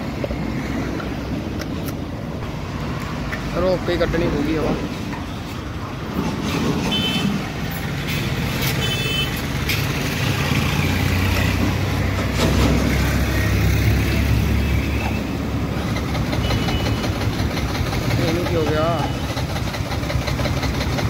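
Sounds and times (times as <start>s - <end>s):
vehicle engine running: 15.6s - 21.0s.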